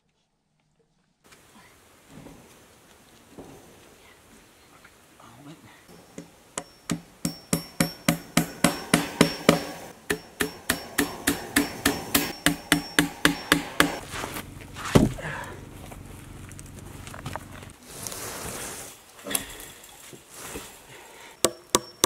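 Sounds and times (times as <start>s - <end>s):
hammer driving staples: 6.9s - 14.0s
heavy thud: 14.8s - 15.4s.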